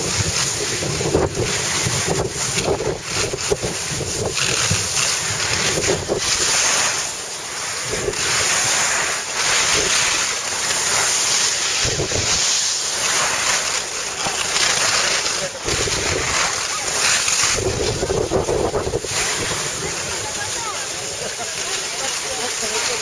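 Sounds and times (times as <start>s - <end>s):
wind rushing over microphone: 0.0s - 6.5s, 7.8s - 9.0s, 11.0s - 12.6s, 15.6s - 21.3s.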